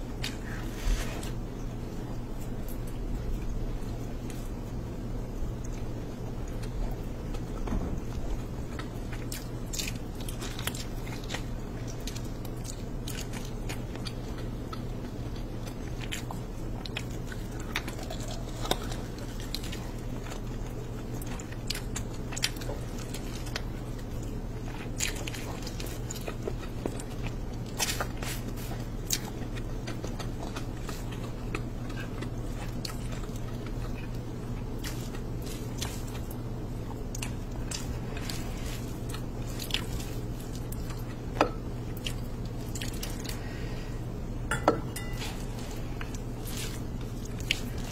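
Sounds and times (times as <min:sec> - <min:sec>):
steady low hum: 0:00.0 - 0:47.9
wet chewing: 0:05.5 - 0:44.0, 0:45.0 - 0:47.9
crisp crunches: 0:24.6 - 0:41.3, 0:45.1 - 0:47.9.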